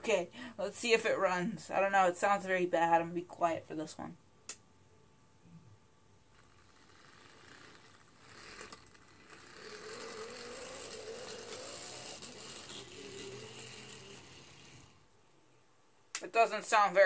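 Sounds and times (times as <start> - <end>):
model locomotive motor whine: 6.4 - 15.1.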